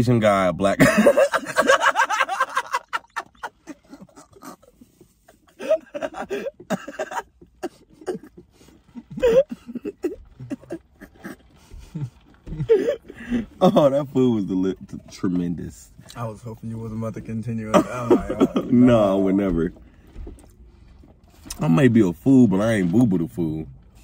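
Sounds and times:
men laughing: 0.8 - 14.0, 17.6 - 19.7.

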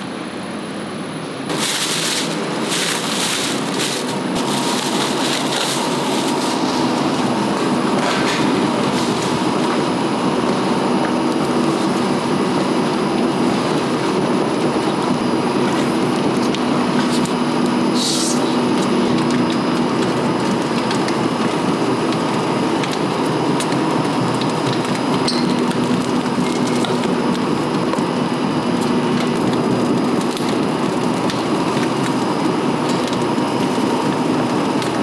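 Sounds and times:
steady hum: 0.0 - 35.0
rubber mill droning: 1.4 - 35.0
sharp hissing: 18.0 - 18.6.

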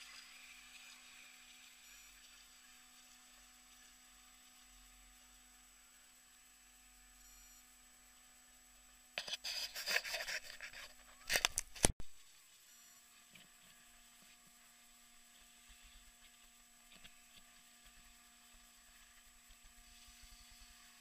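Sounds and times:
faint steady hum: 0.0 - 21.0
rustling and scraping: 9.2 - 12.0.

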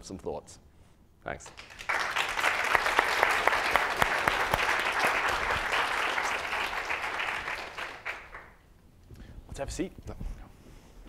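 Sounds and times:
audience applauding: 1.4 - 8.6.

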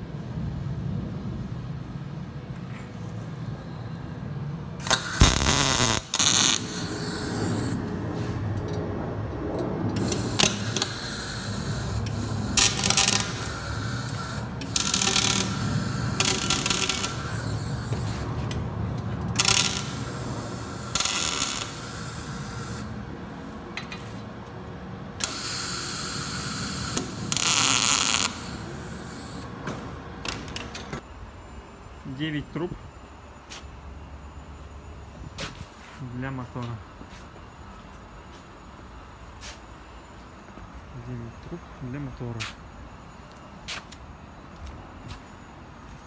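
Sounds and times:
low workshop hum: 0.0 - 46.0
mig welding bursts: 4.8 - 7.8, 10.0 - 18.5, 19.3 - 23.1, 25.2 - 29.5.

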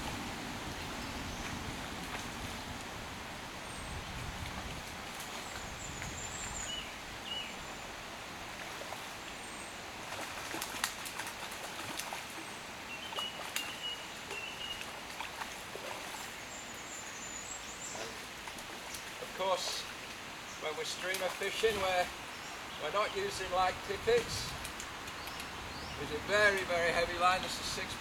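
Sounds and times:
steady outdoor hiss: 0.0 - 28.0
fish splashing in water: 9.9 - 16.4.

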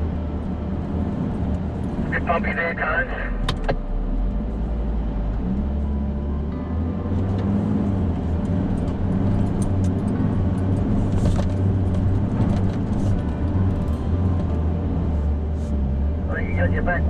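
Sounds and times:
vehicle engine droning: 0.0 - 17.0
vehicle knocks and rattles: 8.7 - 14.6.

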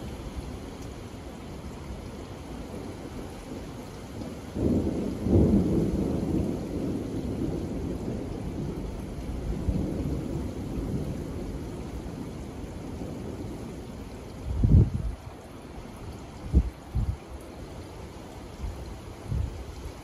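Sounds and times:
rain on a wooden deck: 0.0 - 20.0
thunder rumble: 4.2 - 15.4.

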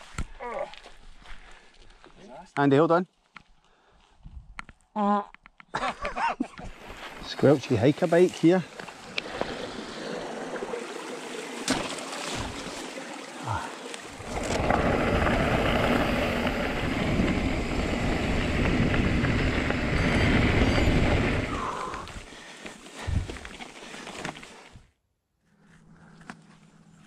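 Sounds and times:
outdoor noise: 0.0 - 27.0
wind rushing over microphone: 14.2 - 22.3.

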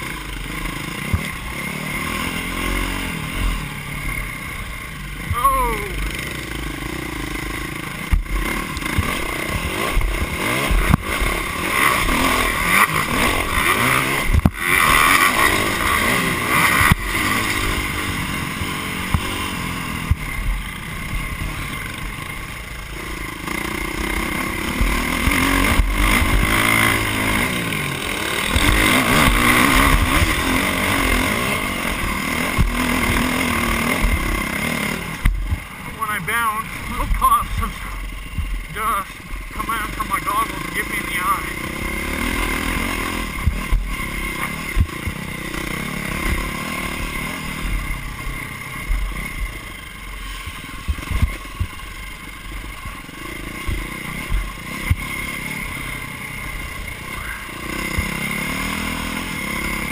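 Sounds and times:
dirt bike engine revving: 0.0 - 59.9
bike knocking on bumps: 1.0 - 1.4, 8.0 - 11.2, 20.0 - 21.3, 32.5 - 33.3, 34.0 - 34.4, 35.2 - 35.8.

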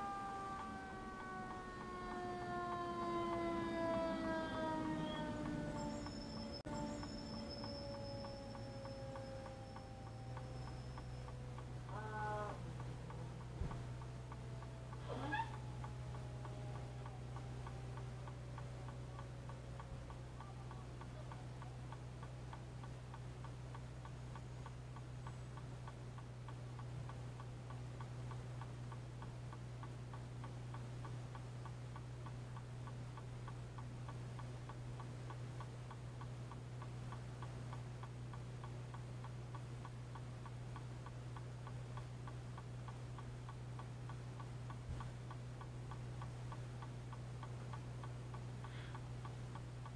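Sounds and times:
steady low hum: 0.0 - 49.9
turn signal clicking: 0.0 - 49.9.

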